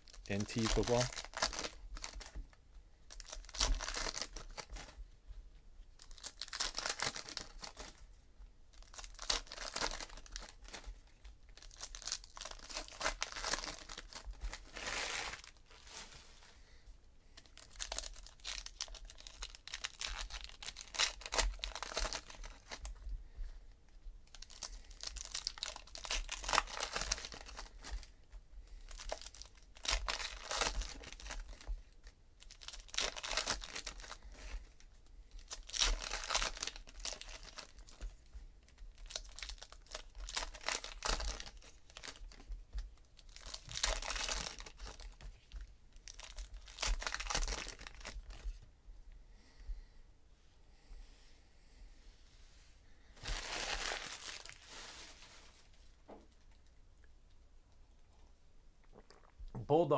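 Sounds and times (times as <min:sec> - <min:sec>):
card pack wrappers tearing and crinkling: 0:00.0 - 0:02.4, 0:03.1 - 0:05.0, 0:06.0 - 0:08.0, 0:08.7 - 0:10.9, 0:11.6 - 0:16.1, 0:17.4 - 0:22.9, 0:24.3 - 0:28.1, 0:28.9 - 0:34.7, 0:35.3 - 0:38.1, 0:38.9 - 0:42.5, 0:43.2 - 0:48.6, 0:53.2 - 0:55.3.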